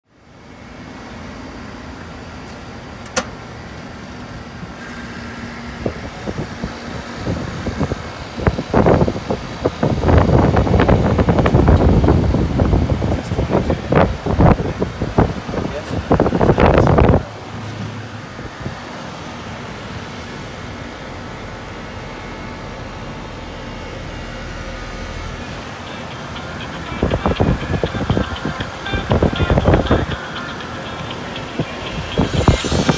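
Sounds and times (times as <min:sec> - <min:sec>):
fan air rushing: 0:00.1 - 0:32.9
heat pump humming: 0:00.1 - 0:32.9.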